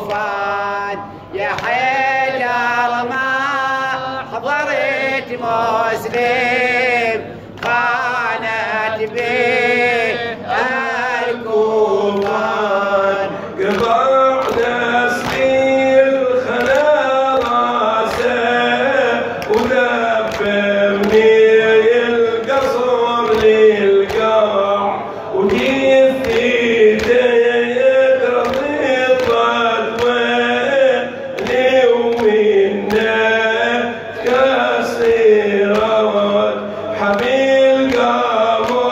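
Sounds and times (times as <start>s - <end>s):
man chanting a lament: 0.0s - 38.9s
sharp rhythmic thumps: 25.4s - 38.9s.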